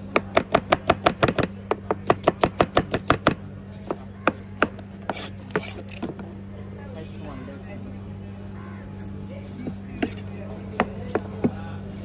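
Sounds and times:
knife chopping on cutting board: 0.2s - 6.2s.

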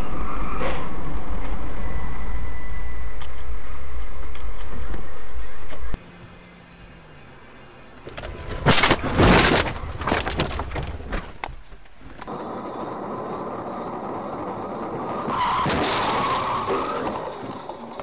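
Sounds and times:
rushing vehicle noise: 0.0s - 18.0s
car crash impacts: 8.1s - 12.2s, 15.3s - 17.6s.

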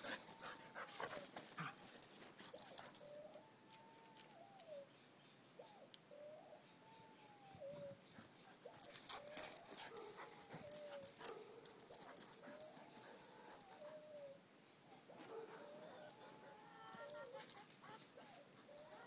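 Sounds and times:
dog whining: 0.0s - 4.8s, 6.9s - 14.4s
clicks and rustling: 8.4s - 12.8s.

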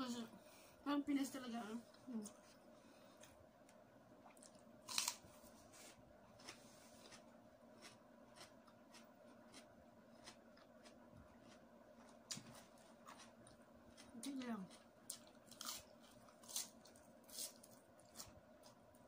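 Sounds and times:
crunchy chewing: 4.2s - 19.0s.

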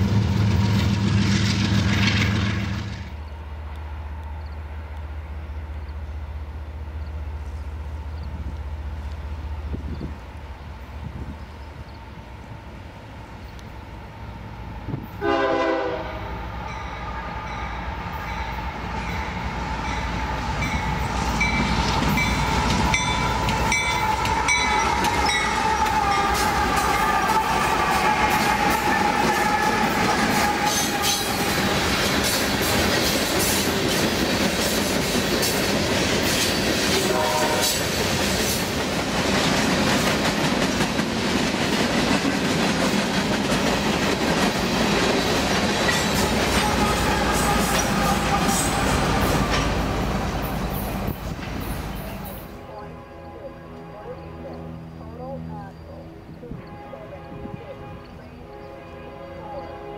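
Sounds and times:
diesel locomotives rumbling: 0.0s - 59.9s
train horn blast: 15.0s - 33.8s, 36.8s - 38.1s, 46.1s - 51.1s, 51.9s - 55.0s, 56.4s - 59.9s.

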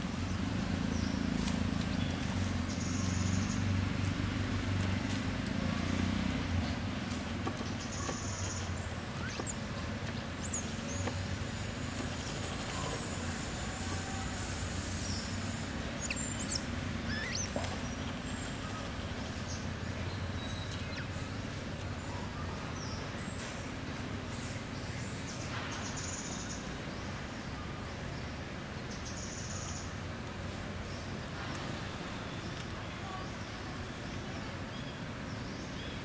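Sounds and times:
small animals chirping and squeaking: 7.8s - 9.7s, 12.2s - 19.0s, 20.4s - 21.5s.

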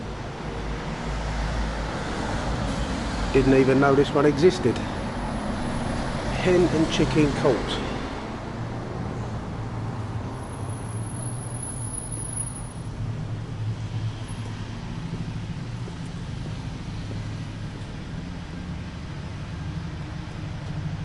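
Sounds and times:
city traffic rumble: 0.0s - 21.0s.

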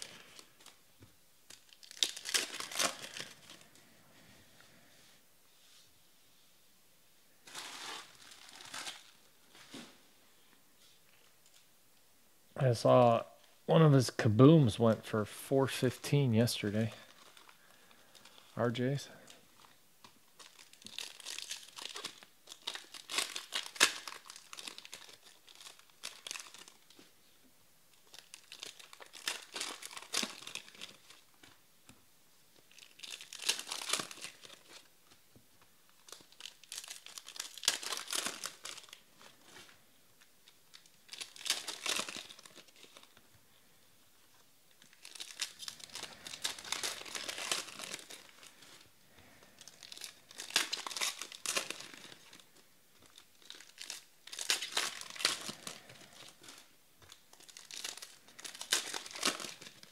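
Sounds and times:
foil wrappers crinkling and tearing: 0.0s - 0.8s, 1.4s - 4.0s, 7.4s - 9.9s, 16.8s - 27.2s, 27.9s - 31.6s, 32.6s - 35.2s, 35.8s - 43.3s, 44.2s - 59.9s.

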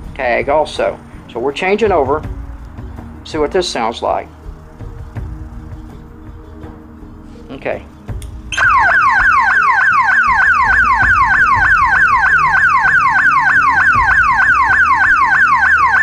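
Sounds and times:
pulsating alarm siren: 8.5s - 16.0s.

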